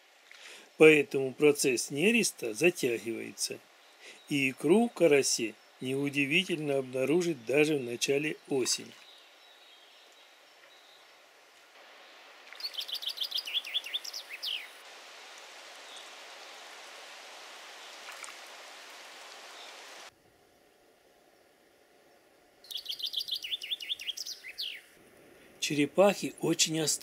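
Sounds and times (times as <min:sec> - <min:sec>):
steady outdoor hiss: 0:00.0 - 0:27.0
chaffinch singing: 0:00.9 - 0:11.3, 0:12.0 - 0:14.8, 0:22.6 - 0:25.0
small splash in pond: 0:08.6 - 0:09.2, 0:12.1 - 0:13.1, 0:17.8 - 0:20.1.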